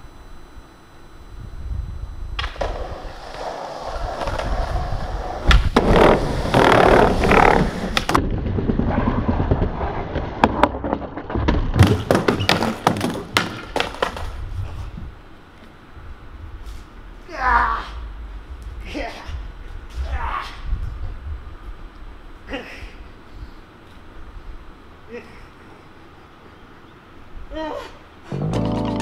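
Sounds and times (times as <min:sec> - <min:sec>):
skateboard wheels rolling: 0:02.4 - 0:15.9, 0:28.3 - 0:29.0
skateboard clacking on ground: 0:10.4 - 0:14.4.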